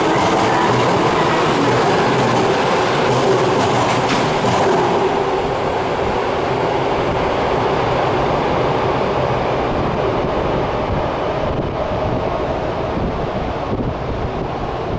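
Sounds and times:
train wheel clacks: 0.0s - 5.6s
train rumble in tunnel: 0.0s - 14.9s.

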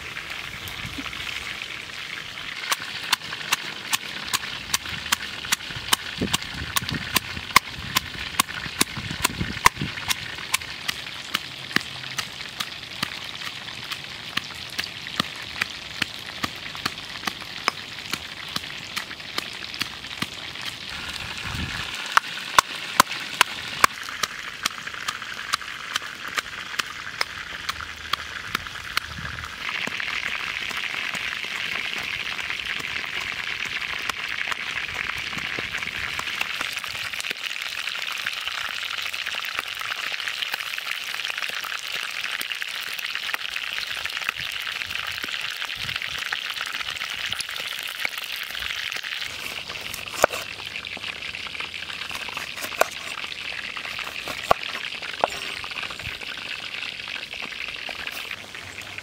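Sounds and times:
chicken frying in hot oil: 0.0s - 59.0s.

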